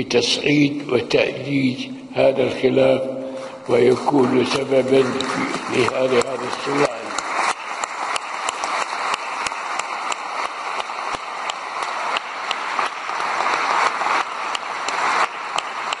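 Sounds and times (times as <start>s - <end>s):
audience applauding: 3.7s - 16.0s.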